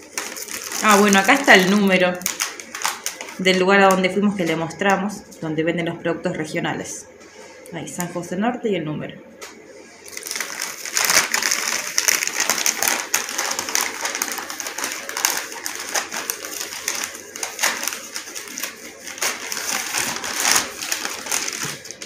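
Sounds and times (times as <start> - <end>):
paper wrapping crinkling: 0.0 - 4.9, 10.0 - 22.0.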